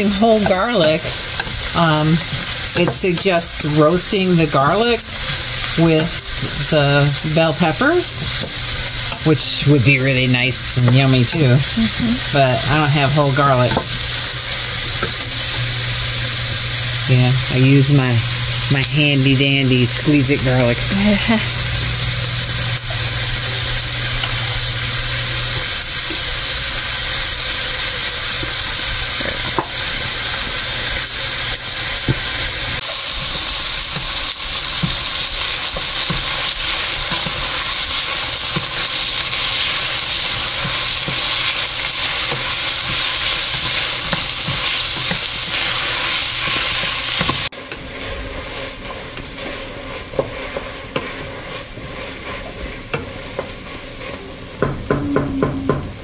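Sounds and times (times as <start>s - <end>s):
utensil stirring and clicking: 0.0s - 3.4s, 32.8s - 54.7s
vegetables sizzling in a pot: 0.0s - 56.0s.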